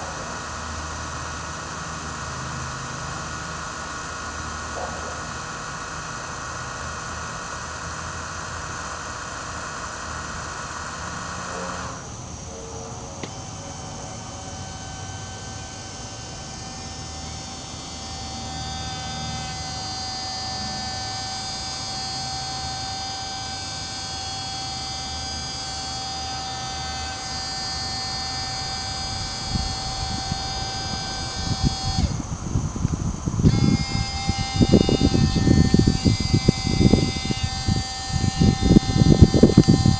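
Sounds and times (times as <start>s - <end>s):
small electric motor whining: 0.0s - 39.9s.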